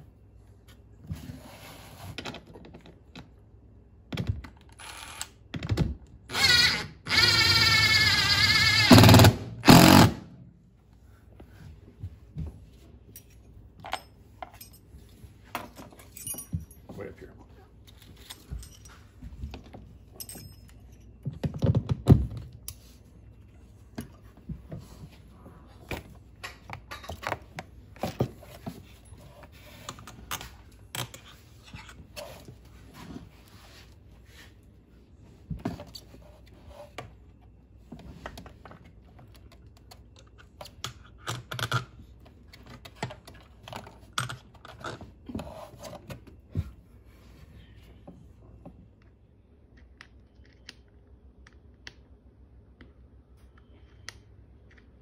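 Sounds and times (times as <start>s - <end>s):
metal hardware clicking and clinking: 20.1s - 21.3s.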